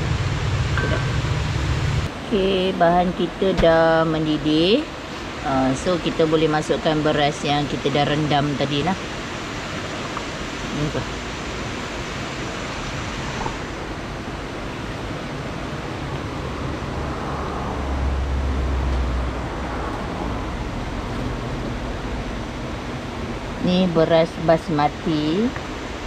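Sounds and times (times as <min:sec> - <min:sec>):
low rumble: 0:00.0 - 0:02.3
river rushing: 0:00.0 - 0:26.0.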